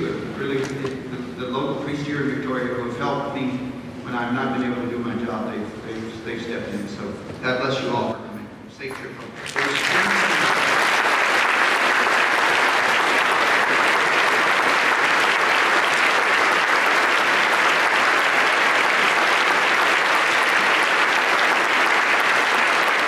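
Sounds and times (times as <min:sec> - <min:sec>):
large audience applauding: 0:09.3 - 0:23.0.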